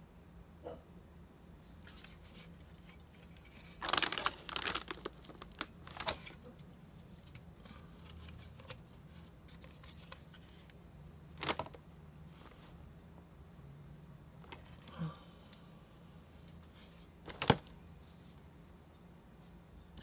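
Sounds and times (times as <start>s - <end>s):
faint low hum: 0.0s - 20.0s
packaging rustling and crinkling: 1.9s - 10.8s, 11.4s - 11.8s.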